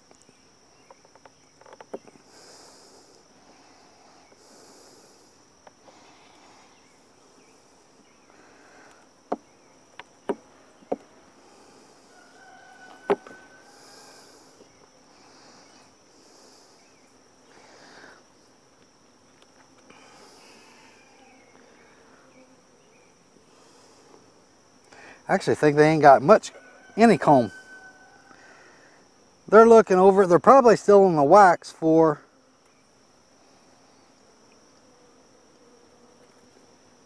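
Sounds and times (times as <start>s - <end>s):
hive frames cracking: 0.0s - 2.2s, 12.9s - 13.5s
bees buzzing: 0.0s - 37.0s.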